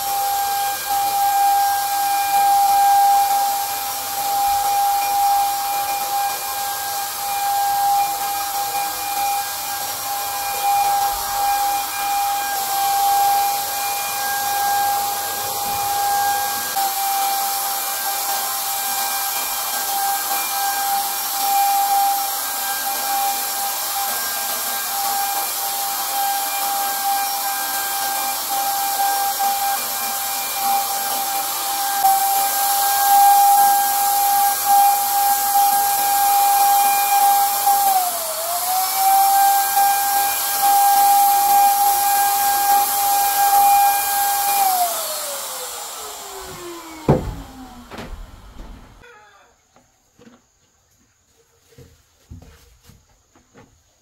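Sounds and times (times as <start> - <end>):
paint sprayer motor whine: 0.0 - 49.1.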